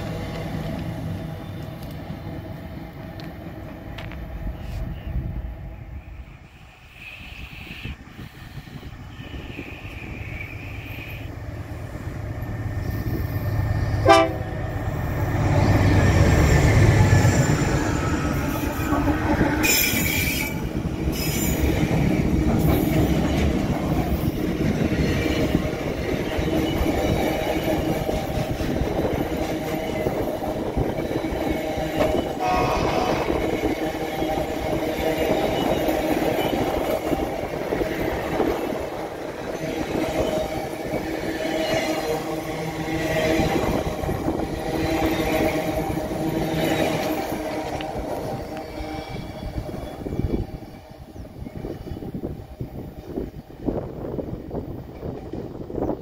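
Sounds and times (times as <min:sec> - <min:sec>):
train wheels rumbling and clattering: 0:00.0 - 0:06.7, 0:07.4 - 0:56.0
train horn blast: 0:14.0 - 0:14.8, 0:32.4 - 0:33.8.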